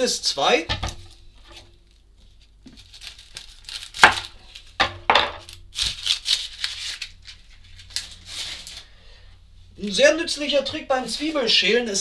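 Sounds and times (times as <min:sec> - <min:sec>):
onion skin crackling: 0:00.0 - 0:09.0.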